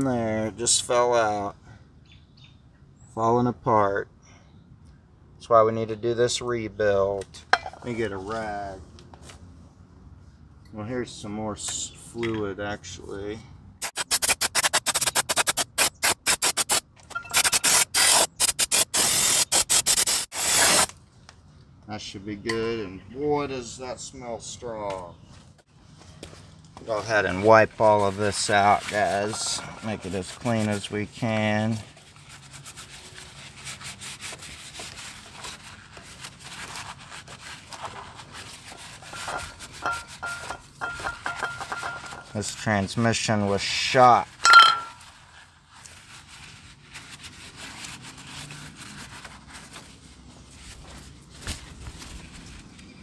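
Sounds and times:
aerosol spray can hissing: 0:13.8 - 0:20.9
rag scrubbing metal case: 0:37.7 - 0:42.3
light metal clinks: 0:44.5 - 0:45.0.

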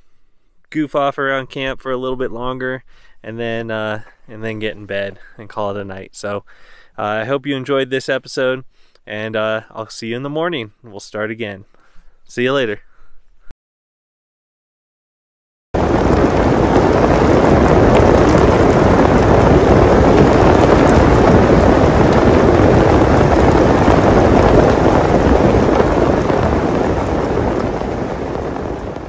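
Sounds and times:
heavy rain rushing: 0:15.8 - 0:29.0.

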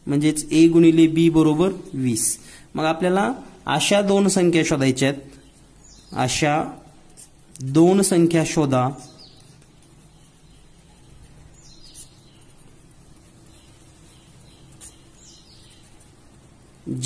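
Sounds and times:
marker squeaking on paper: 0:06.8 - 0:08.2, 0:09.0 - 0:17.0.

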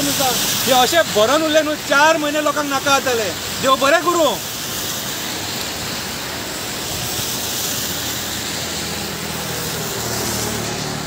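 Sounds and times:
tyres hissing through water: 0:00.0 - 0:11.0
faint vehicle engine: 0:07.2 - 0:11.0.

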